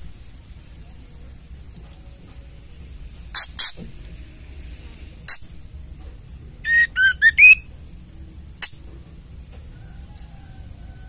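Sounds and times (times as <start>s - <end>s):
bird rasping chatter calls: 6.7s - 7.6s
bird whistled notes: 6.7s - 7.6s.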